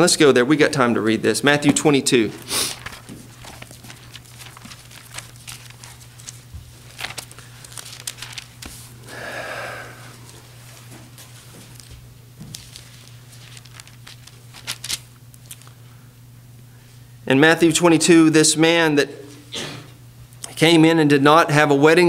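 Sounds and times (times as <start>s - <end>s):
steady low hum: 0.0s - 22.0s
paper pages rustling: 2.3s - 9.0s, 10.3s - 15.7s.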